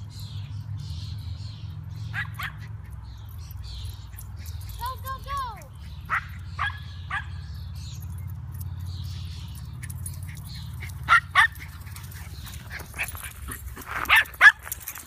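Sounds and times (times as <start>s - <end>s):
small dogs yapping: 2.1s - 3.0s, 4.0s - 7.5s, 9.5s - 15.0s.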